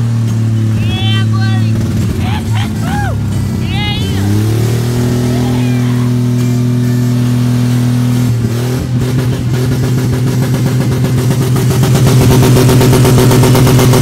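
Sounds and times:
car engine revving roughly: 0.0s - 14.0s.

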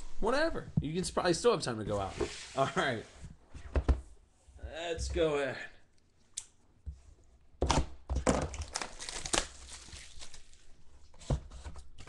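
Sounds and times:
plastic wrapping crinkling and tearing: 8.5s - 10.7s.

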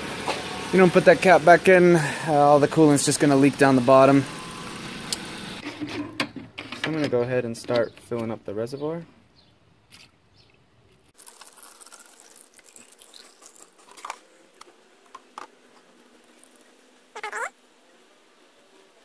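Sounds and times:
coolant trickling through funnel: 11.2s - 17.5s.

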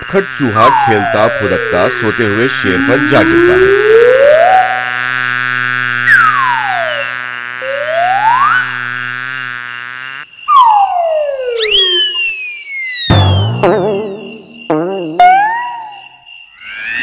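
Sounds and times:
buzzing drone: 0.0s - 17.0s
slide whistle glides: 6.0s - 7.0s, 7.6s - 8.7s, 10.5s - 17.0s.

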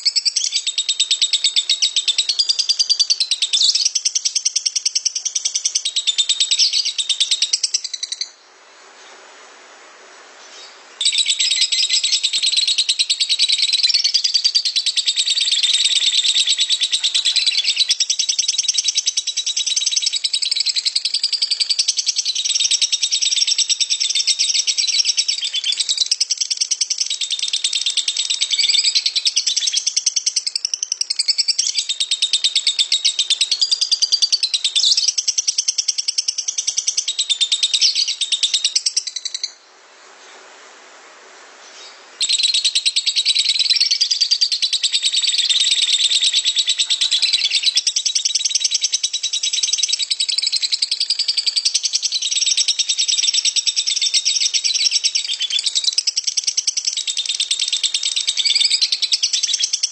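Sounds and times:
bird chattering trill: 11.0s - 39.6s, 42.2s - 59.9s.

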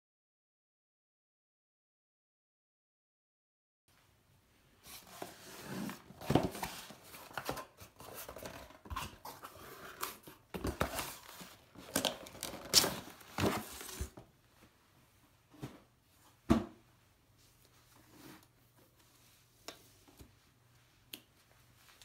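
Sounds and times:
box sliding against cardboard: 4.9s - 7.3s
cardboard box torn open: 11.9s - 14.1s.

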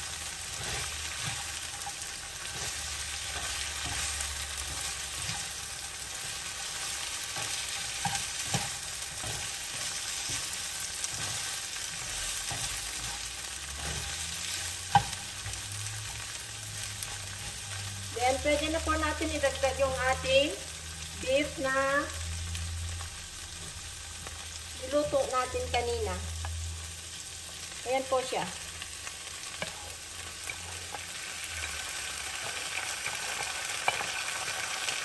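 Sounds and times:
vegetables sizzling in oil: 0.0s - 35.0s
spatula knocking and scraping pan: 0.6s - 16.2s, 29.5s - 31.0s.

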